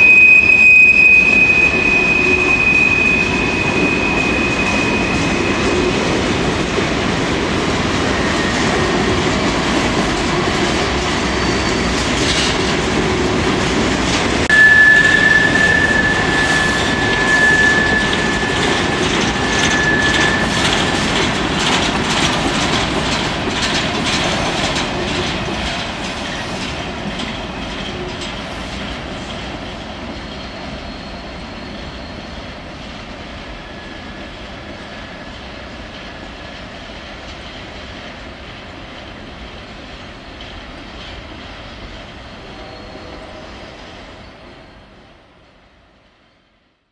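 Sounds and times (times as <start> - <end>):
high wheel squeal: 0.0 - 7.0, 7.7 - 9.7, 10.5 - 12.5, 14.4 - 23.7, 28.8 - 35.0
train wheels rumbling and clicking: 0.0 - 44.6.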